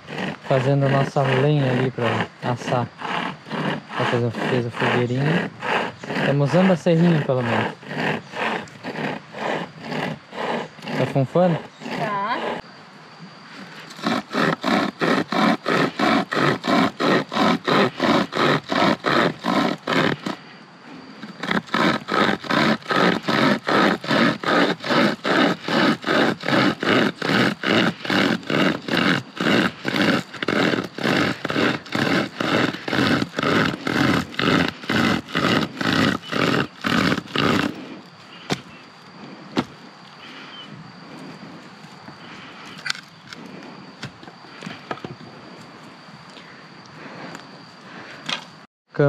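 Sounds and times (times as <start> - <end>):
hand saw cutting wood: 0.0 - 12.6, 13.9 - 20.4, 21.2 - 38.7.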